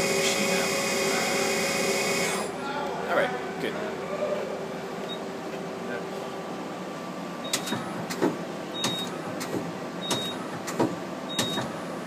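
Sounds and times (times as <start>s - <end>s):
machine humming: 0.0s - 2.6s.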